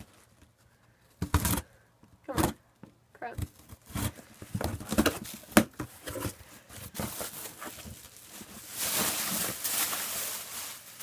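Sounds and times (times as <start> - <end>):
plastic bag crinkling: 6.8 - 11.0.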